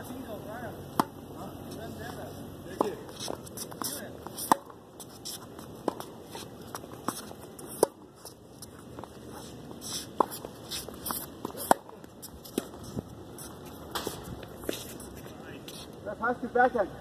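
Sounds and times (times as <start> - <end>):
tennis ball off racket strings: 0.9 - 1.2, 1.8 - 15.1
tennis ball bouncing: 0.9 - 14.9
shoes scuffing on court: 1.7 - 15.9.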